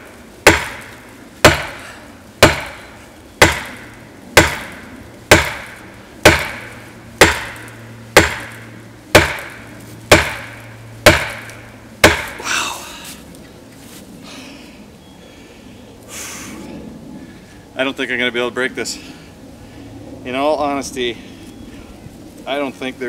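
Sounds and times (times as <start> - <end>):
axe handle whacking tree trunk: 0.5 - 1.8, 2.4 - 2.8, 3.4 - 3.8, 4.4 - 8.6, 9.2 - 12.4.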